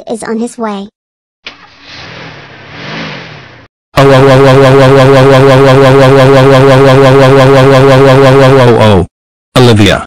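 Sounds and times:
loud distorted pulsing tone: 0:04.0 - 0:08.7.

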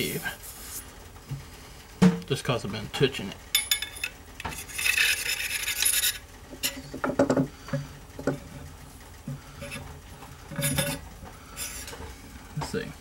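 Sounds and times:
rag rubbing on metal tube: 0:04.6 - 0:06.8.

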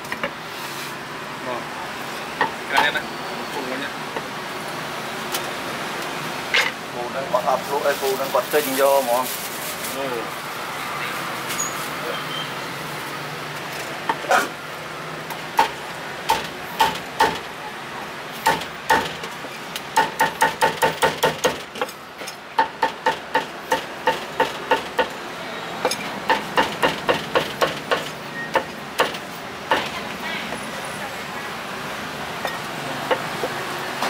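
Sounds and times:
cleaver chopping on wooden block: 0:18.4 - 0:19.2.

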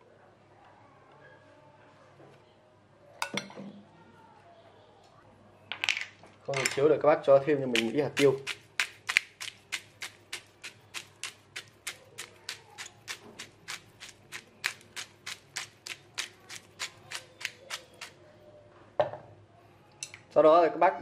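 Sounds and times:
pepper shaker ticking: 0:07.7 - 0:18.2.

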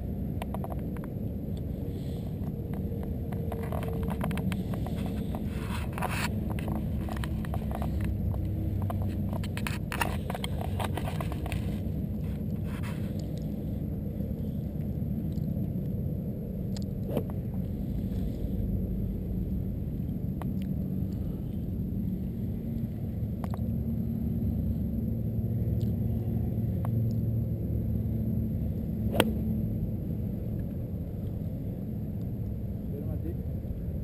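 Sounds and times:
steady low rumble: 0:00.0 - 0:34.0
golf club striking ball: 0:29.1 - 0:29.6.

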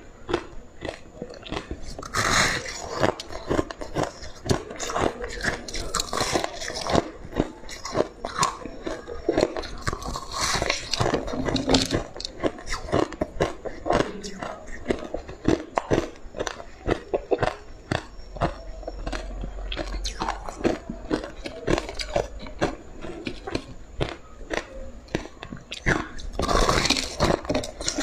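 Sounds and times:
person crunching ice: 0:00.3 - 0:14.4, 0:26.4 - 0:28.0.

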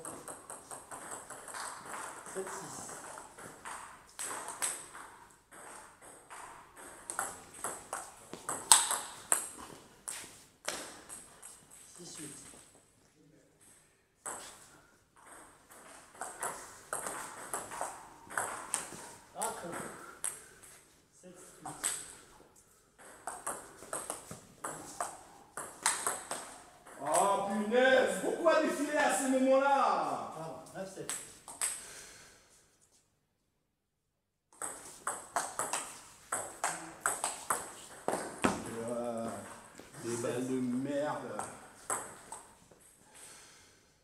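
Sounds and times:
ball bouncing on table: 0:00.0 - 0:11.6, 0:23.0 - 0:27.3, 0:34.6 - 0:39.9, 0:41.2 - 0:42.6
table tennis ball hitting bats: 0:00.0 - 0:11.7, 0:14.2 - 0:20.8, 0:21.6 - 0:22.4, 0:23.0 - 0:27.7, 0:31.0 - 0:31.9, 0:34.5 - 0:40.0, 0:41.0 - 0:42.8
man talking: 0:27.0 - 0:31.1, 0:38.6 - 0:41.6.

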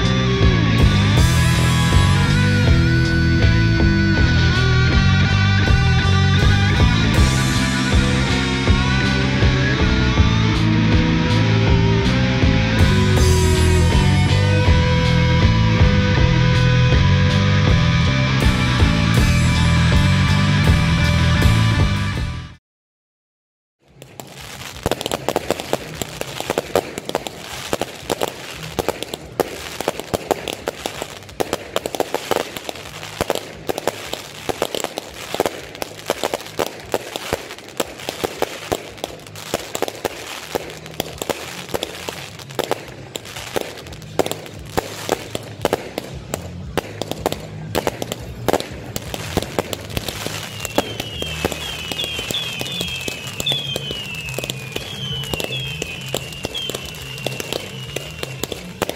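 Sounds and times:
fireworks crackling and popping: 0:00.0 - 0:20.8, 0:23.8 - 0:58.9
firework whistles: 0:23.9 - 0:58.9.

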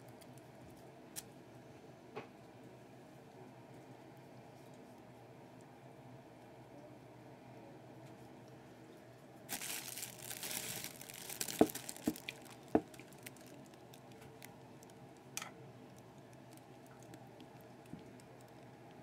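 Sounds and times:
crinkly rustling: 0:09.5 - 0:15.3, 0:15.9 - 0:19.0.

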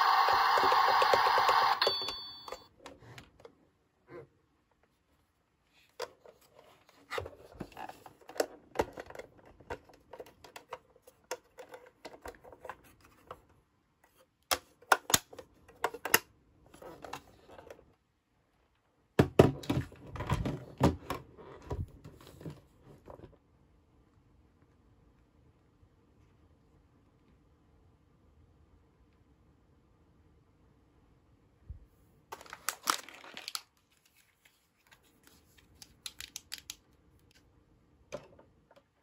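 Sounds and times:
plastic toy clicks and clatters: 0:00.0 - 0:02.6, 0:35.8 - 0:36.8.

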